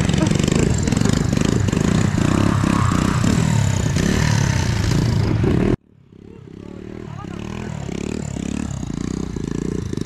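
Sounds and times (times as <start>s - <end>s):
engine clatter: 0.0s - 2.5s
small motorbike engine revving: 0.0s - 10.0s.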